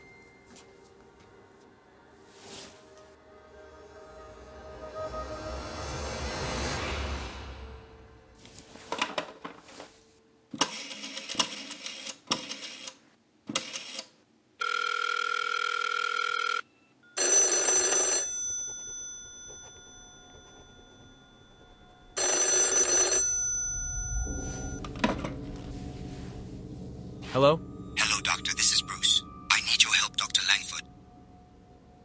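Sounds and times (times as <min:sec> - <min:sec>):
telephone bell ringing: 0:14.6 - 0:24.8.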